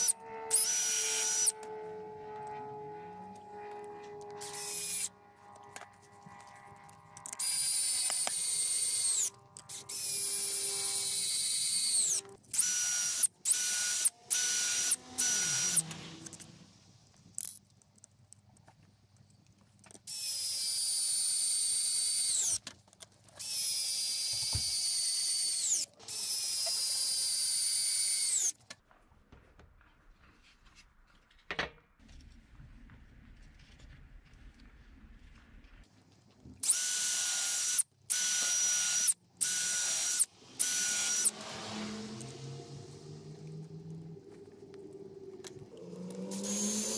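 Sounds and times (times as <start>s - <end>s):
electric drill whining into wood: 0.0s - 16.7s, 20.1s - 22.6s, 23.4s - 28.6s, 36.6s - 46.9s
drill trigger blips: 7.4s - 15.9s, 36.6s - 41.3s, 46.3s - 46.9s.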